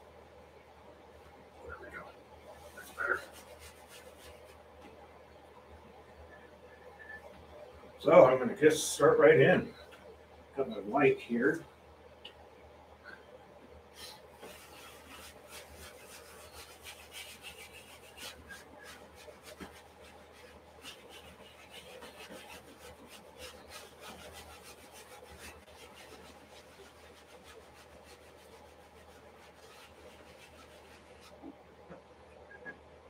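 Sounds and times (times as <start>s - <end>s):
sponge scratching on canvas: 2.6s - 4.6s, 14.0s - 31.6s.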